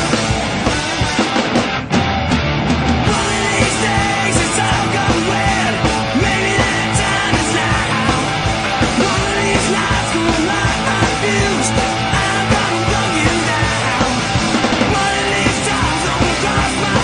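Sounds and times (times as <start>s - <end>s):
rock music: 0.0s - 17.0s.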